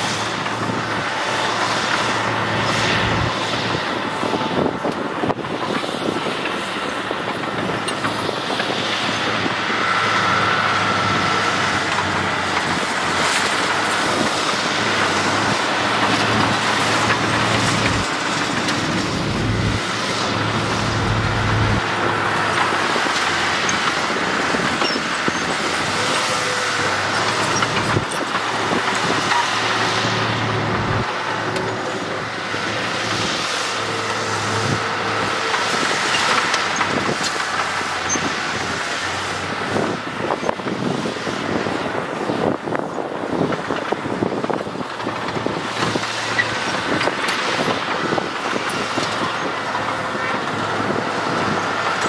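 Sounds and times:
heavy diesel machinery engines: 0.0s - 52.0s.

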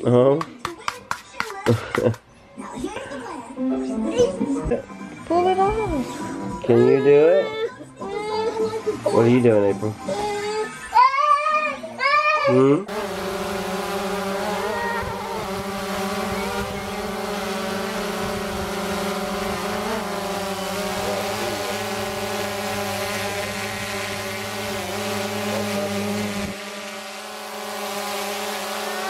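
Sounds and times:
drone propellers buzzing: 12.9s - 29.0s.

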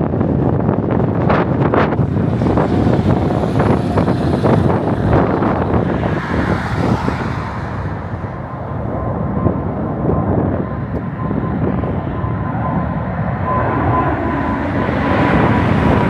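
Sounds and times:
jet airliner rumble: 0.0s - 16.0s
truck driving away: 1.6s - 16.0s.

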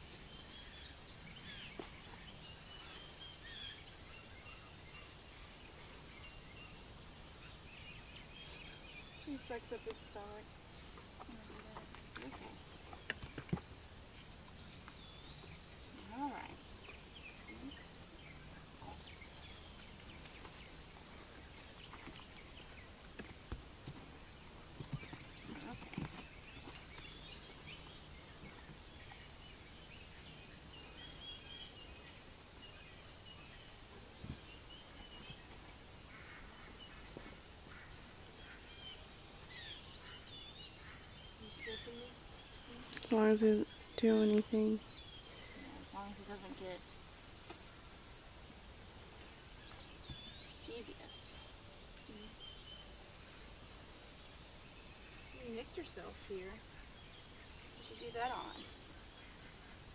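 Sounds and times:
faint bird chirps: 14.1s - 22.9s, 24.8s - 47.0s, 49.2s - 59.9s.

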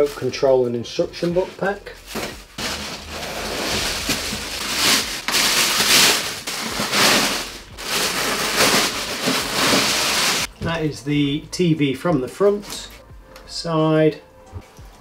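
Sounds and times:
packaging rustling and crackling: 1.2s - 10.5s.

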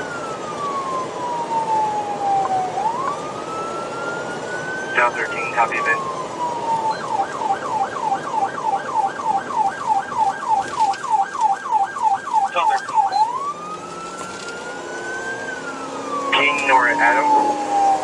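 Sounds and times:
electronic police siren: 0.0s - 18.0s.

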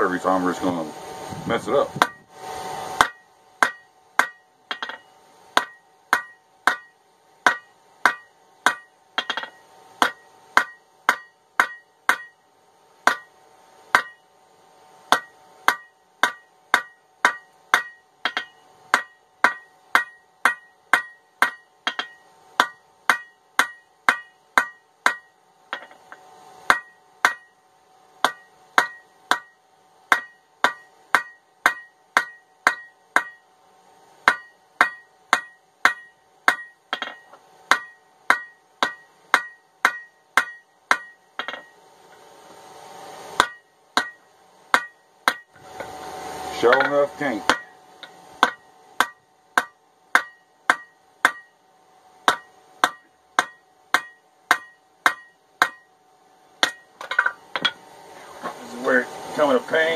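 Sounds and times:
hammer striking steel on anvil: 3.0s - 12.4s, 13.0s - 14.3s, 15.0s - 27.6s, 28.2s - 33.5s, 34.2s - 41.8s, 43.4s - 45.9s, 46.5s - 51.6s, 52.2s - 55.9s, 56.6s - 57.8s.

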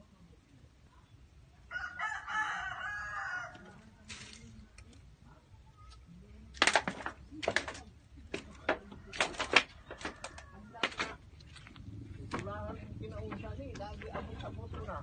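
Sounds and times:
rooster crowing: 1.7s - 3.7s.

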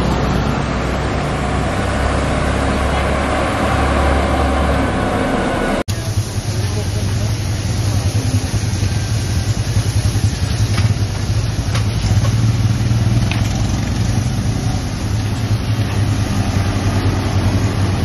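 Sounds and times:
engine idling: 4.8s - 16.4s.

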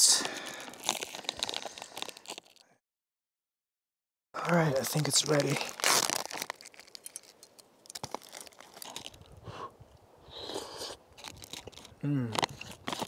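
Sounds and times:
meal pouch crinkling: 0.0s - 2.7s, 4.7s - 9.4s, 10.5s - 13.0s
spoon clicks and rustles: 0.3s - 2.6s, 5.0s - 10.0s, 11.1s - 13.0s
chewing: 10.4s - 13.0s.

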